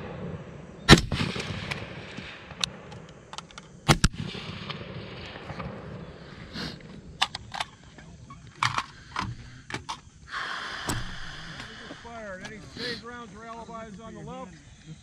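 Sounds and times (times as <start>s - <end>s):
loud rifle shots: 0.0s - 3.0s, 3.9s - 6.2s.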